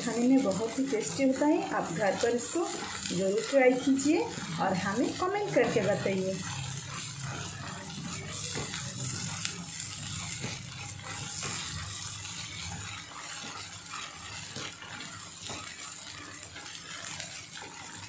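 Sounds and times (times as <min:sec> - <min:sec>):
food sizzling in hot oil: 0:00.0 - 0:18.0
spatula scraping pan: 0:00.0 - 0:18.0.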